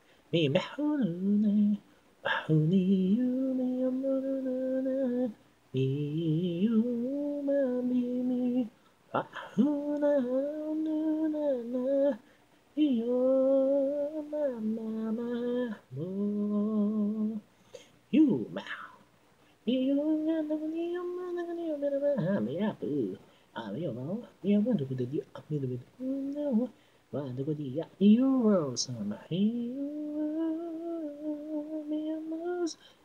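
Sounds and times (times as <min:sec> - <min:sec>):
person singing a cappella: 0:00.0 - 0:33.0
quick breath: 0:17.5 - 0:18.0.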